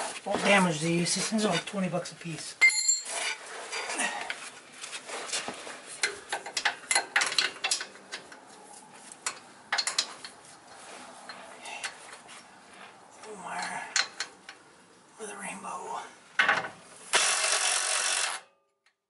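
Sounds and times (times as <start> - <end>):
hand tools clinking on concrete: 2.6 - 4.0.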